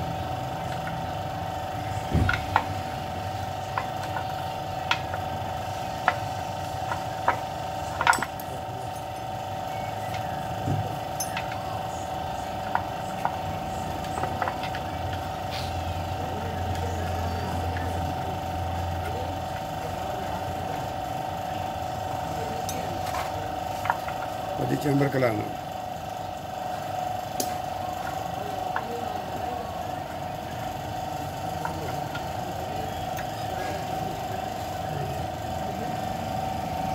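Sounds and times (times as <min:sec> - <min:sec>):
steady hum: 0:00.0 - 0:36.9
metal tools knocking on engine: 0:02.0 - 0:12.0.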